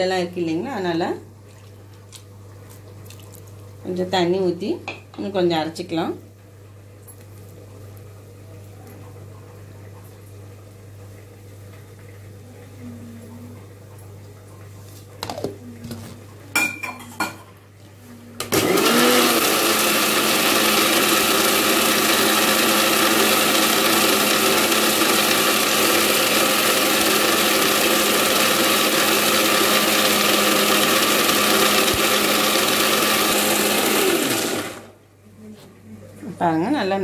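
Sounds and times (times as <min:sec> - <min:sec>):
mixer grinder motor running: 0:18.4 - 0:35.0.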